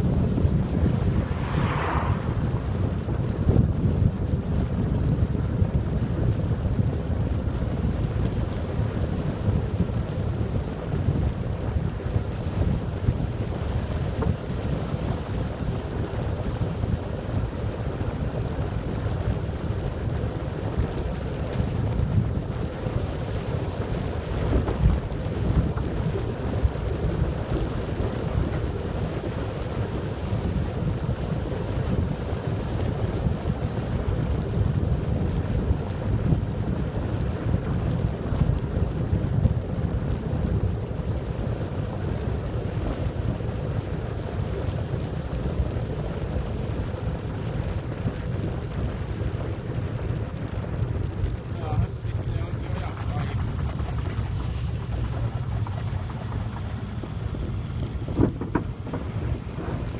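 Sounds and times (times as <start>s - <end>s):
tyre rumble on rough asphalt: 0.0s - 59.9s
wind noise on microphone: 0.0s - 59.9s.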